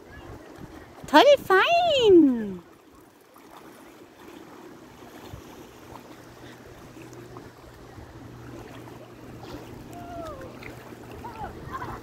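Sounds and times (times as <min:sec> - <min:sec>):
seawater lapping at shore: 0:00.0 - 0:12.0
low steady hum: 0:04.2 - 0:12.0.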